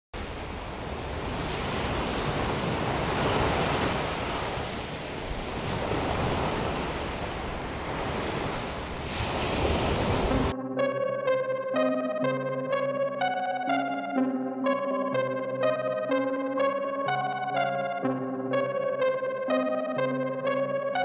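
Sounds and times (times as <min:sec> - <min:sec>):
waves on pebble beach: 0:00.2 - 0:10.5
electronic keyboard music: 0:10.0 - 0:21.0.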